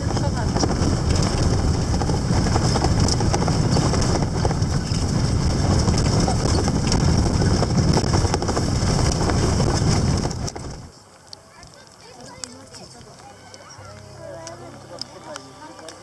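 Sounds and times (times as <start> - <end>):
rattles and knocks: 0.0 - 10.9
vehicle rumbling over dirt track: 0.0 - 11.0.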